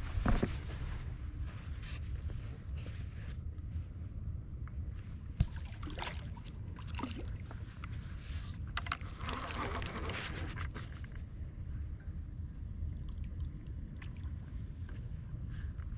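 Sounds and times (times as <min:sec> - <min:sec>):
wind rumble on microphone: 0:00.0 - 0:15.9
fishing reel handling: 0:08.7 - 0:10.7.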